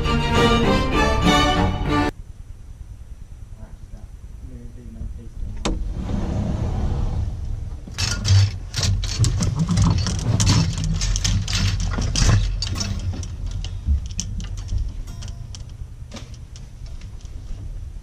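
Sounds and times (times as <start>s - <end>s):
wire hangers clattering: 7.9s - 17.6s.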